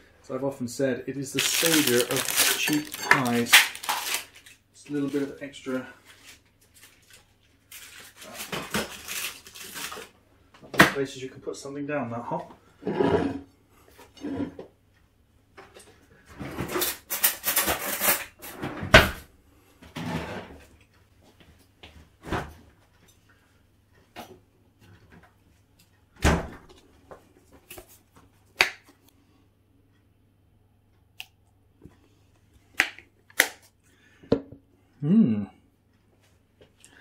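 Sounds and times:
rustling: 1.2 - 5.3
things being set down: 1.4 - 4.2
cupboards and drawers opening and closing: 16.3 - 20.6, 26.2 - 26.7.

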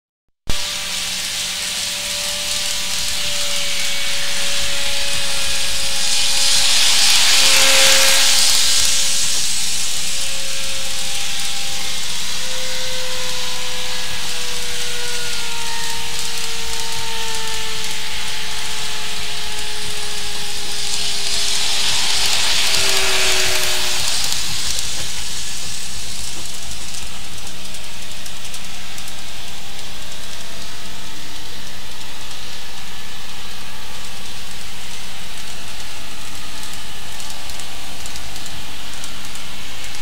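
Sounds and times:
model electric train running: 0.5 - 40.0.

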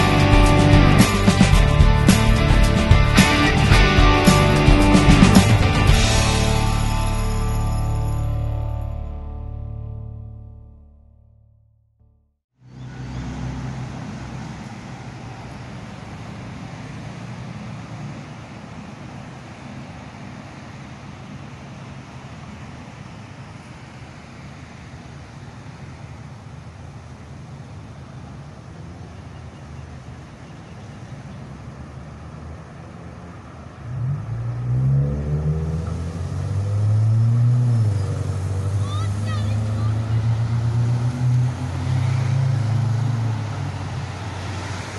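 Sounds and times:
tram humming with hiss: 0.0 - 8.2, 12.7 - 34.6, 35.4 - 44.9
road traffic rumble: 0.0 - 10.9, 12.5 - 44.9
motor drone rising in pitch: 0.0 - 11.2, 33.8 - 44.9.

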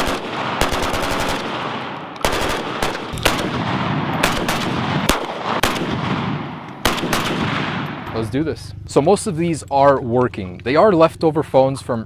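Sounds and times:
rifle shots echoing: 0.0 - 8.4.

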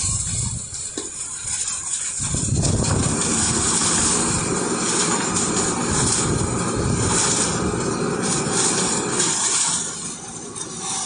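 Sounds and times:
concrete pouring down chute: 0.0 - 11.0
diesel engine running hard: 2.2 - 11.0.

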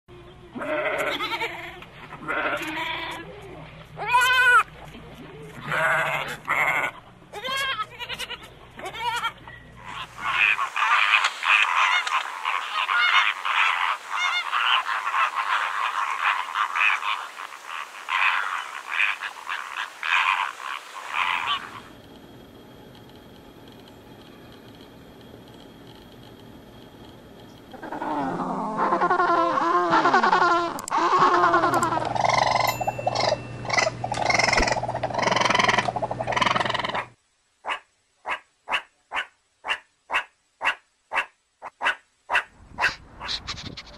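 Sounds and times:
goats bleating: 0.6 - 3.4, 4.0 - 4.7, 5.6 - 10.5
flamingos honking and chattering: 8.0 - 22.0, 27.7 - 37.2.

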